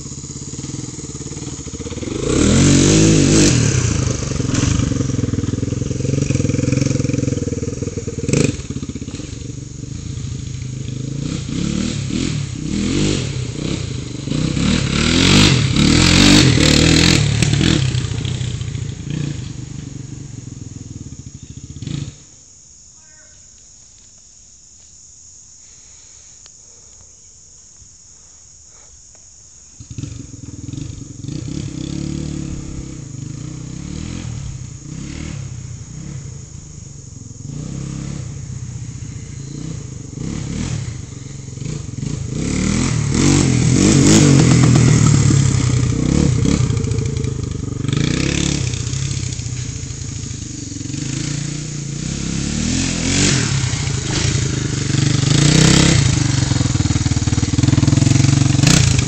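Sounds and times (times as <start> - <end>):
single-cylinder engine revving: 0.0 - 22.3, 29.8 - 59.0.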